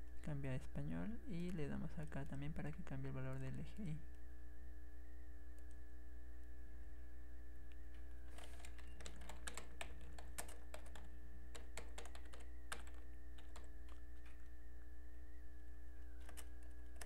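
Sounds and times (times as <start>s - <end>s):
steady low hum: 0.0s - 17.0s
keyboard typing: 7.9s - 14.5s, 16.0s - 17.0s.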